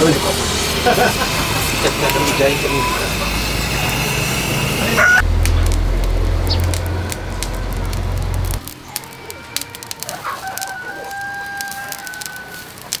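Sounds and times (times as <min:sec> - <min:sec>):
loud low rumble: 0:00.0 - 0:10.0
charcoal fire crackling: 0:00.0 - 0:13.0
rooster crowing: 0:00.8 - 0:05.3, 0:06.5 - 0:13.0.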